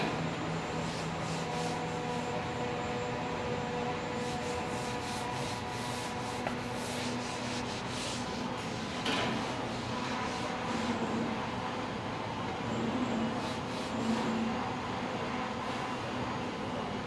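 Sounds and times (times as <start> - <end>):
machine hum: 0.0 - 17.0.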